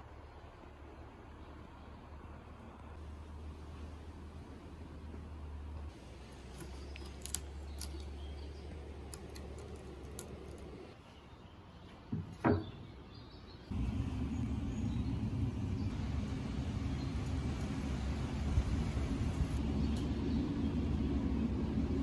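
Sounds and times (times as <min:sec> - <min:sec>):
wooden beam knocking on workbench: 0:12.1 - 0:12.8
faint low hum: 0:13.7 - 0:22.0
steady low rumble: 0:13.7 - 0:22.0.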